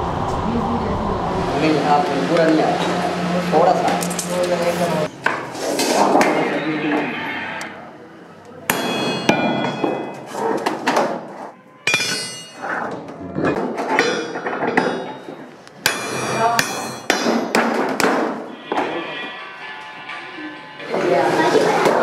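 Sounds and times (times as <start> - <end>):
hammer striking metal punch: 8.7 - 10.2, 11.9 - 12.6, 15.8 - 18.3
metallic ring of sheet metal: 8.7 - 10.3, 11.8 - 12.8, 14.0 - 17.5.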